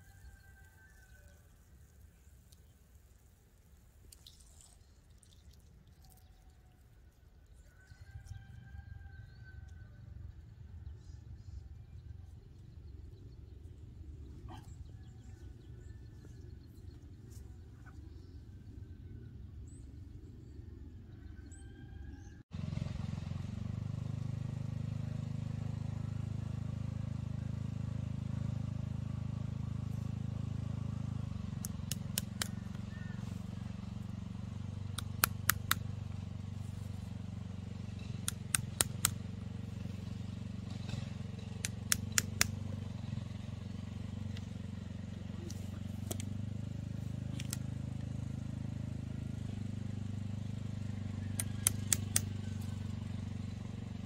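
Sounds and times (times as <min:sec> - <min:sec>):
clicks of holes punched in hose: 0:35.0 - 0:35.8, 0:38.2 - 0:39.2, 0:41.6 - 0:42.5, 0:51.4 - 0:52.3.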